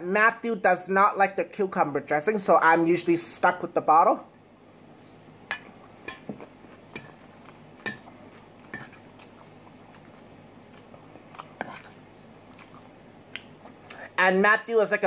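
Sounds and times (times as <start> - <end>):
person chewing salad: 4.6 - 14.0.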